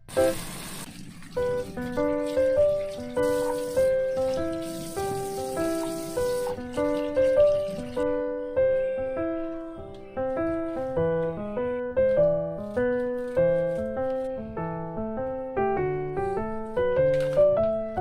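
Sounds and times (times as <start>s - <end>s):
running tap: 0.0s - 8.0s
piano melody: 0.0s - 18.0s.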